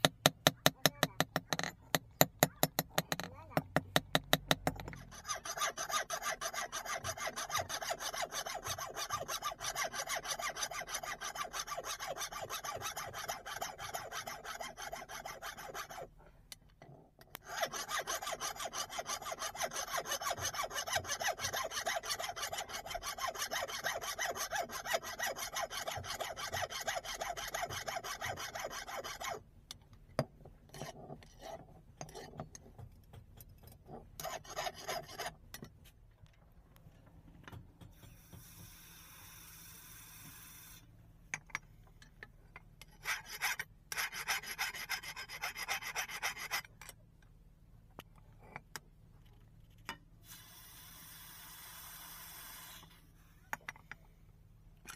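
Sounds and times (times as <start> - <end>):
file rasping on steel: 0.0 - 16.2, 16.9 - 29.4, 30.7 - 32.6, 33.9 - 35.4, 42.8 - 46.9.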